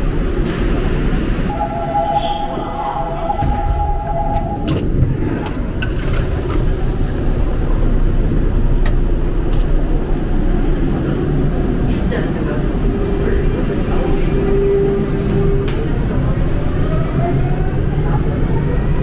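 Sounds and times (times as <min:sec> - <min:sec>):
train wheels rumbling on track: 0:00.0 - 0:19.0
steady tone: 0:01.4 - 0:05.2.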